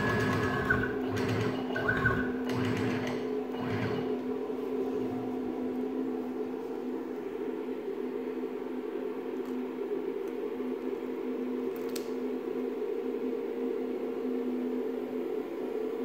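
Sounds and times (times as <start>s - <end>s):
router motor humming: 0.0s - 4.2s.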